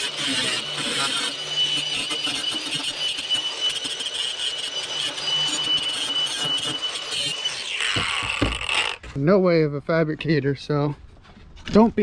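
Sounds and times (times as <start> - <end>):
angle grinder grinding sheet metal: 0.0 - 9.2.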